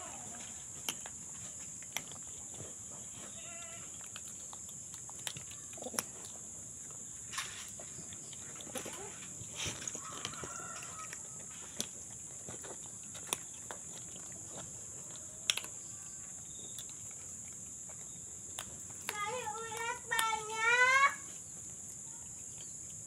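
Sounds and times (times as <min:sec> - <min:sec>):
rooster crowing: 0:09.9 - 0:11.6.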